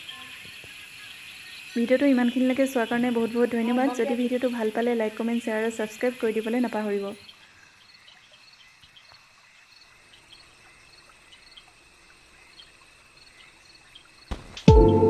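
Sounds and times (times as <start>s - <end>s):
faint insect chirping: 0.0s - 14.6s
music: 14.6s - 15.0s.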